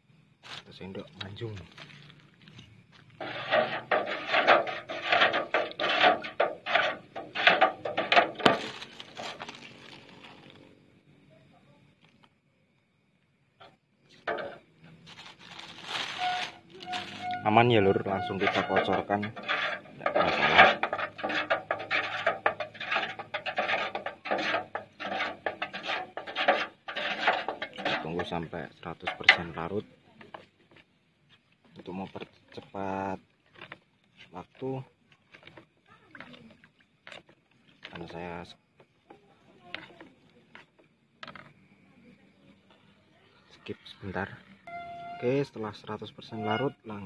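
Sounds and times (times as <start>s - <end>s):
stick stirring water in a can: 1.0s - 10.7s, 13.6s - 41.8s, 46.2s - 47.0s
stick knocking against metal can: 3.2s - 8.8s, 17.3s - 30.5s.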